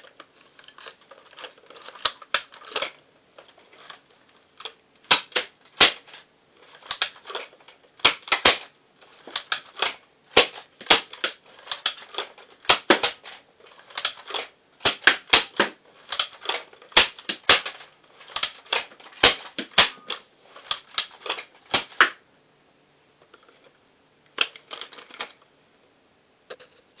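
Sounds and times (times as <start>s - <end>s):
plastic blaster priming clacks: 0.6s - 3.0s, 4.6s - 22.2s
dart blaster pops: 12.7s - 13.2s, 17.0s - 17.8s.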